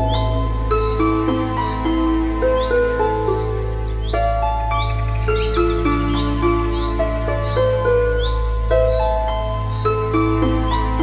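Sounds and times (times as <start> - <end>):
held chords: 0.0 - 11.0.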